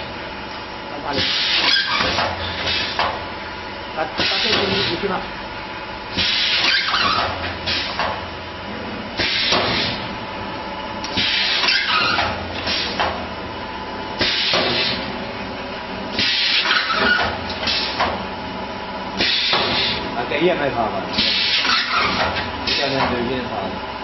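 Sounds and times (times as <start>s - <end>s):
machine hissing: 1.1s - 3.0s, 4.2s - 5.2s, 6.1s - 8.0s, 9.2s - 10.1s, 11.1s - 13.0s, 14.2s - 15.1s, 16.1s - 18.1s, 19.2s - 20.1s, 21.1s - 23.2s.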